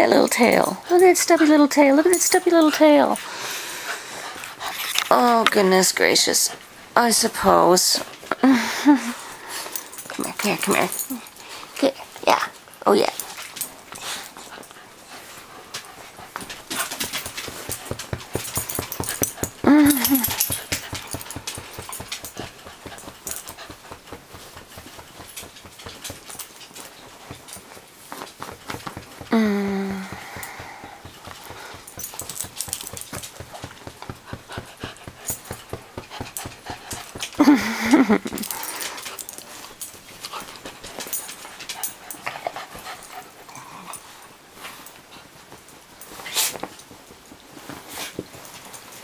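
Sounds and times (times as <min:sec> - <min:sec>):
dog panting: 0:13.9 - 0:29.3, 0:30.0 - 0:44.2
small dog snuffling and panting: 0:30.0 - 0:45.4.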